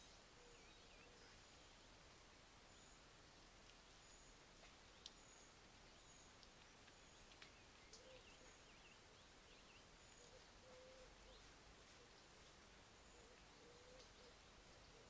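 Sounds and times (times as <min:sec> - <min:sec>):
faint steady hiss: 0:00.0 - 0:15.0
distant birds calling: 0:04.0 - 0:15.0.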